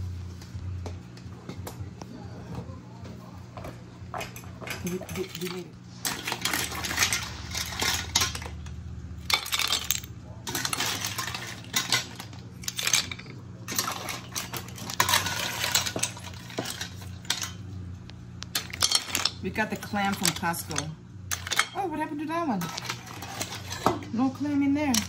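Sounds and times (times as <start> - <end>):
steady low hum: 0.0 - 25.0
clam shells clattering: 4.6 - 17.6, 18.5 - 21.8.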